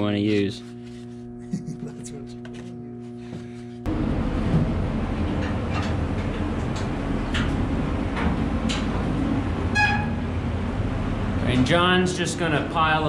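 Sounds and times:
steady low rumble: 3.8s - 13.0s.

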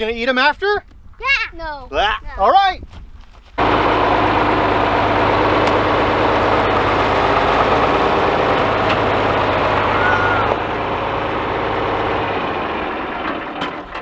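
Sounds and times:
tractor diesel engine running: 3.6s - 14.0s.

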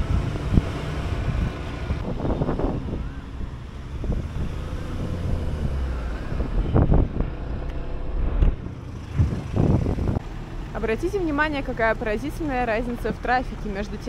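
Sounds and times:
wind rumbling on microphone: 0.0s - 10.4s
road traffic: 0.0s - 14.0s.

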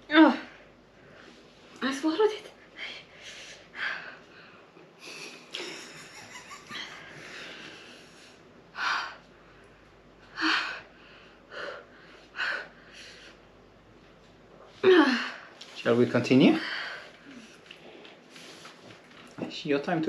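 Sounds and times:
woman breathing hard: 10.3s - 13.5s.

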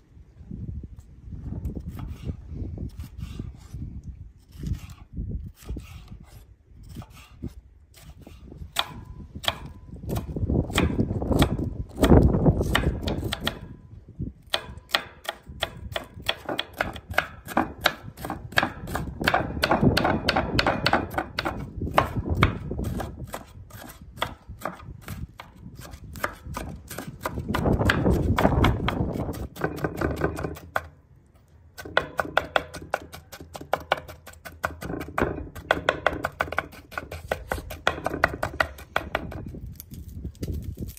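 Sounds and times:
knife chopping on wooden board: 6.9s - 13.7s, 14.5s - 30.9s, 31.8s - 39.5s.

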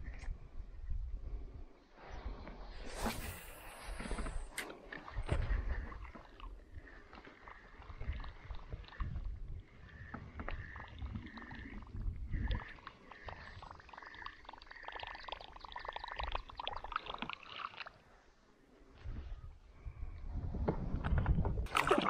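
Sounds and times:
paddle water splashing: 21.7s - 22.0s.

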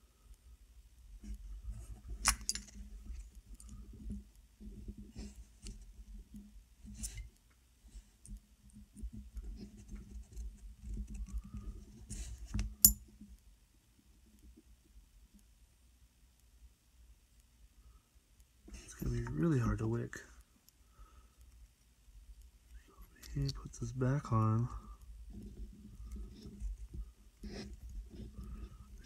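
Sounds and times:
small metal parts clicking: 2.2s - 2.8s.

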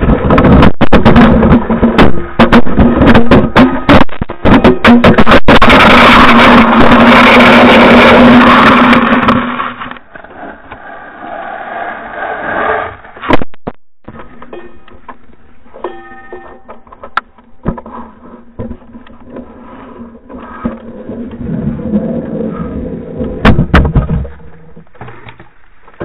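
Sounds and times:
object scraping across ice: 6.1s - 13.3s.

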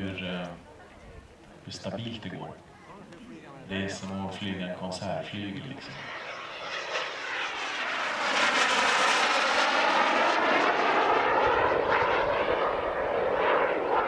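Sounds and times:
model jet turbine flying past: 5.3s - 14.0s.

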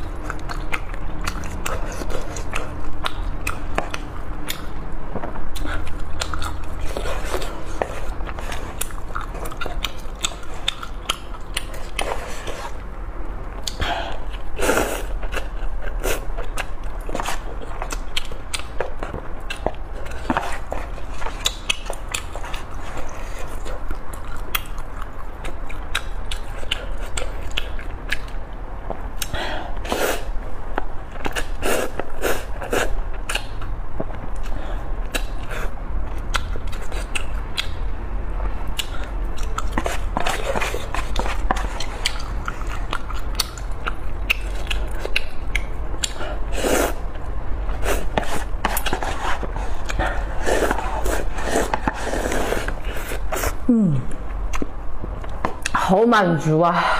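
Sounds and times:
chewing noodles: 0.0s - 12.9s, 13.5s - 55.8s
wet mouth clicks: 42.0s - 46.2s
slurping noodles: 46.5s - 47.0s, 47.7s - 53.7s.

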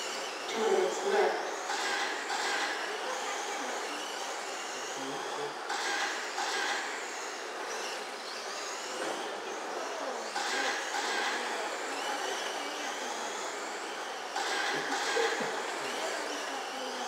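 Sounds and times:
rc truck motors whining: 0.0s - 17.0s.

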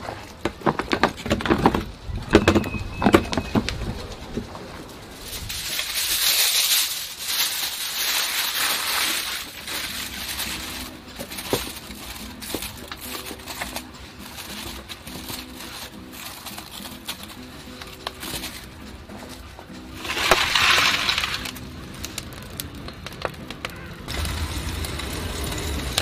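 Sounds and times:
aluminium foil crinkling: 3.7s - 26.0s.

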